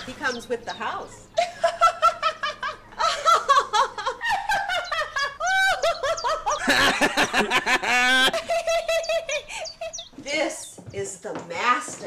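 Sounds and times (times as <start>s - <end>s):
women laughing: 0.0s - 10.1s.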